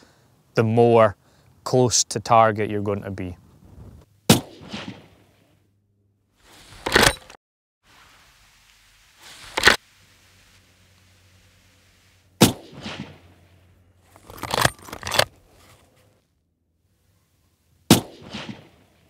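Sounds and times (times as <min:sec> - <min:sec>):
rifle shots with echo: 0:04.3 - 0:05.2, 0:12.4 - 0:13.4, 0:17.9 - 0:19.0.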